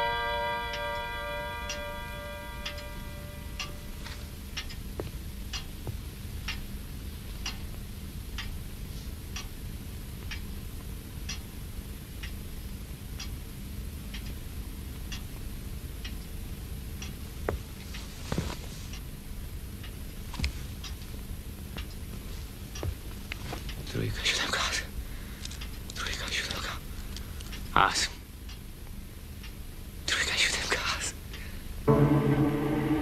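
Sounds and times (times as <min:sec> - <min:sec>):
low steady hum: 0:00.0 - 0:07.3, 0:29.1 - 0:33.0
clock ticking: 0:00.0 - 0:08.7
short loud noise: 0:31.9 - 0:33.0.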